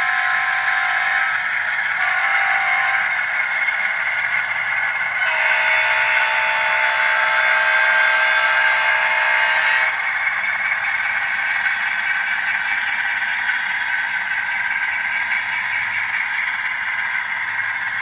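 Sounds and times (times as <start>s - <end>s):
train horn chord: 0.0s - 1.4s, 2.0s - 3.2s, 5.2s - 10.0s
model train wheels clattering: 9.4s - 18.0s.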